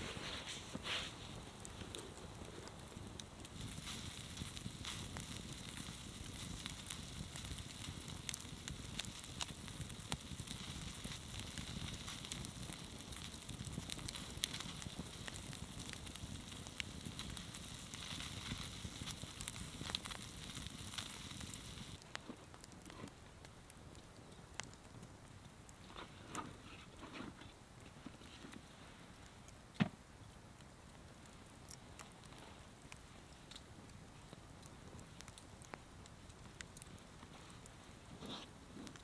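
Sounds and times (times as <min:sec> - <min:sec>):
fire hissing: 0:00.0 - 0:23.2, 0:30.8 - 0:39.0
campfire crackling and popping: 0:00.0 - 0:39.0.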